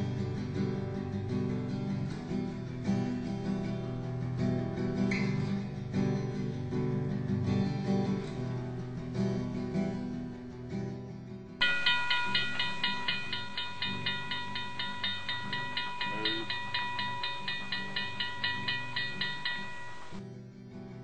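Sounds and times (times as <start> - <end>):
strummed acoustic guitar music: 0.0 - 21.0
high-pitched repeating pulses: 11.6 - 20.2.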